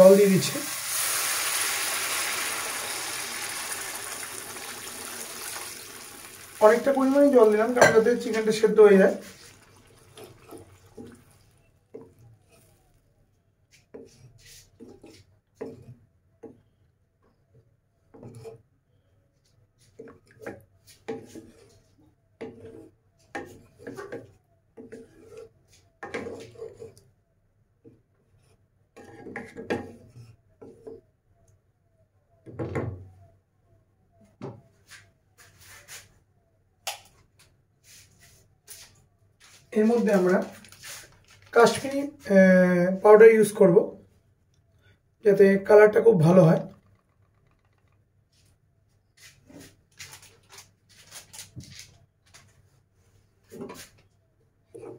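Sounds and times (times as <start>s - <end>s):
spatula scraping a cooking pan: 13.9s - 16.0s, 18.1s - 18.6s, 20.9s - 27.0s, 28.4s - 30.9s.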